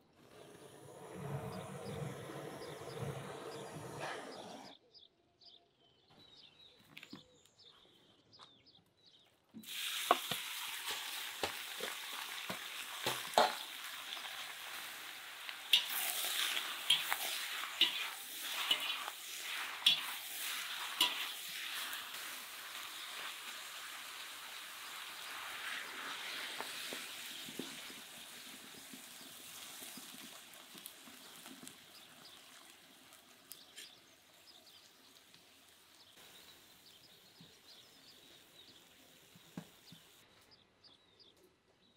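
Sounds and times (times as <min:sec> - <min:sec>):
meat sizzling in a pot: 0:09.6 - 0:40.2
metal spatula scraping a pot: 0:15.7 - 0:22.0.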